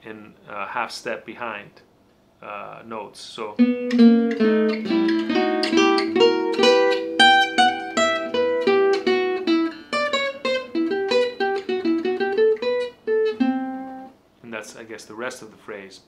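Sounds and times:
fast acoustic jazz guitar: 3.6s - 14.8s.

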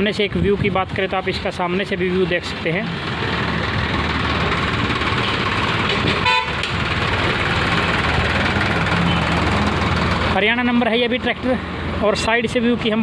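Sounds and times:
vehicle engine running: 2.2s - 12.0s.

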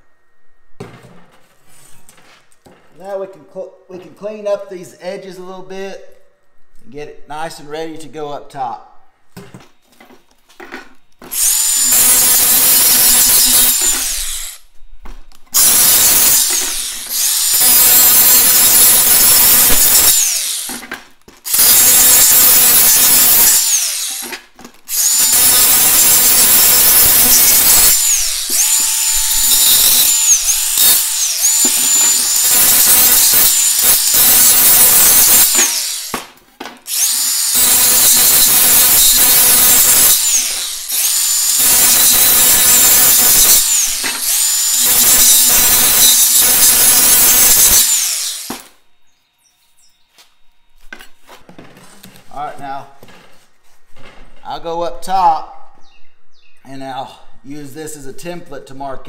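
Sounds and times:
angle grinder whining: 9.4s - 14.8s, 15.5s - 52.1s.

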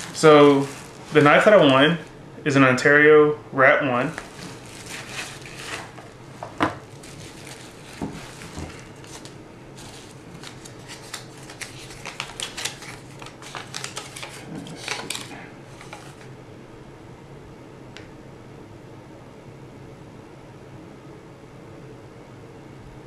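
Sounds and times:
bubble wrap and tape crackling: 0.0s - 2.2s, 4.1s - 16.3s.

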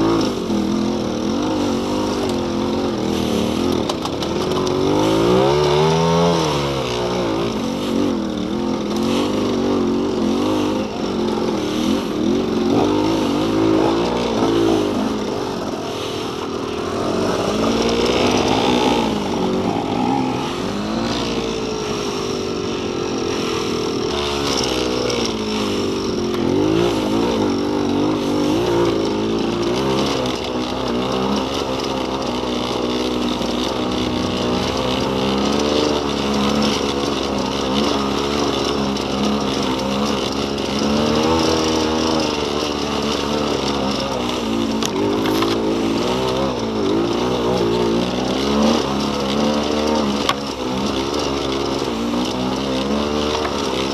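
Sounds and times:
dirt bike engine revving: 0.0s - 53.9s.

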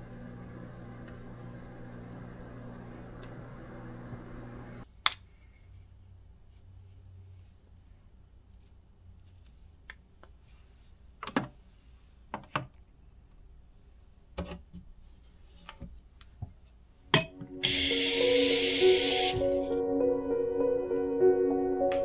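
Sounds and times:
soft music: 17.2s - 22.0s
faucet running water: 17.6s - 19.6s.

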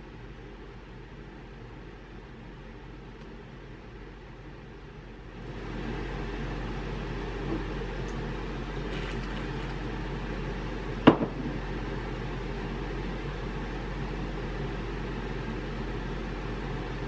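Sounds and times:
low room hum: 0.0s - 17.0s
glass bottle knocking on desk: 11.1s - 11.4s.

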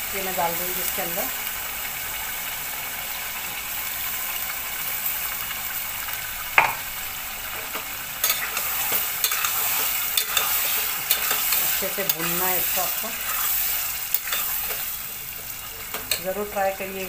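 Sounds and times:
food sizzling in oil: 0.0s - 17.0s
spatula scraping in pot: 8.2s - 16.2s.

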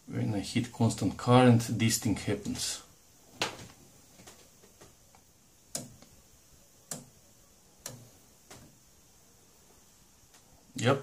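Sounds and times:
power supply clicks: 3.4s - 6.1s, 6.9s - 7.2s, 7.8s - 8.8s.

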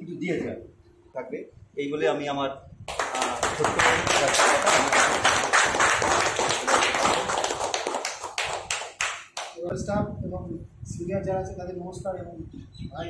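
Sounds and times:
people applauding: 2.9s - 9.6s.

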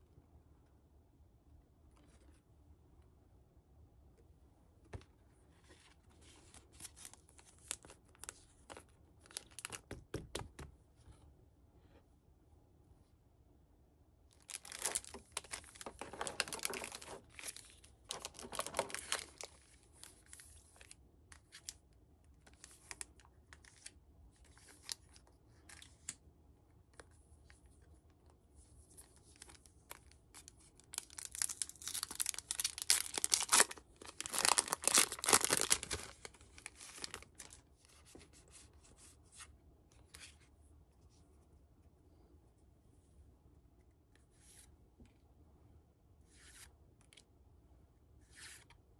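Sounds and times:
plastic packaging crinkling: 14.4s - 20.9s, 29.4s - 37.6s
foil pack tearing: 31.2s - 36.0s.

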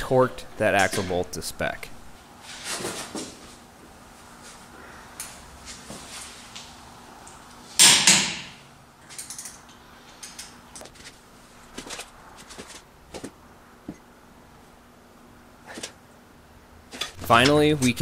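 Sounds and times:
hand tools clattering: 16.9s - 18.0s.

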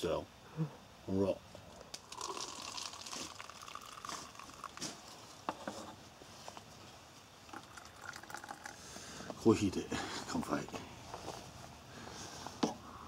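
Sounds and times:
coffee pouring into cups: 1.7s - 6.0s, 7.4s - 9.5s.

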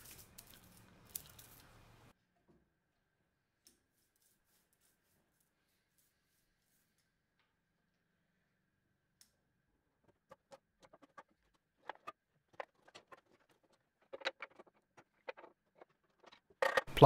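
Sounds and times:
clamps and timber clicking: 10.0s - 17.0s.

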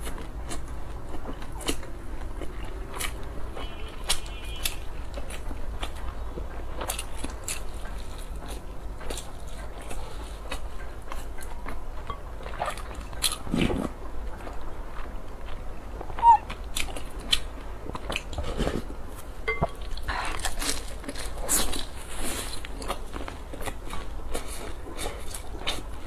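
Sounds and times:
chewing: 0.0s - 26.0s.

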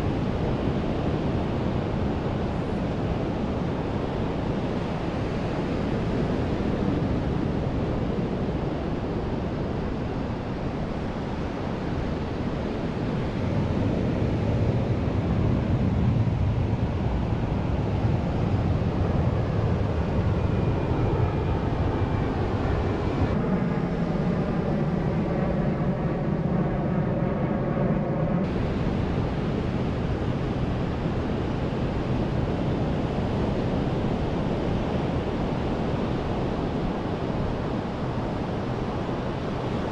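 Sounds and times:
steady engine drone: 0.0s - 39.9s
wind buffeting microphone: 28.4s - 39.9s.

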